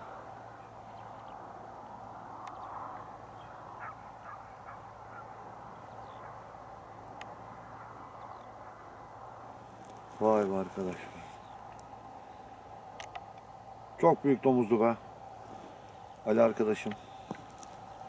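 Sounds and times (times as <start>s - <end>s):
steady outdoor hiss: 0.0s - 18.0s
distant animal calls: 2.5s - 6.6s.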